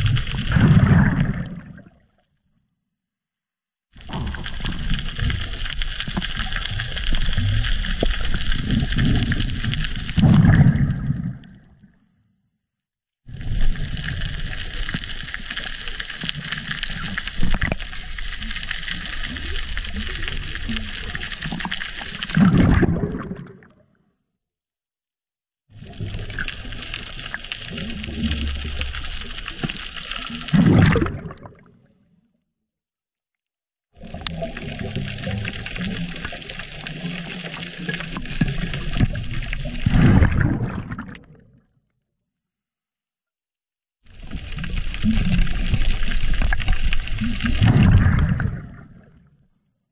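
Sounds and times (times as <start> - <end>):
low water rumble: 0.0 - 2.1, 4.0 - 12.1, 13.3 - 23.7, 25.8 - 31.9, 34.0 - 41.7, 44.1 - 49.8
low water surge: 34.0 - 41.2, 44.2 - 49.2.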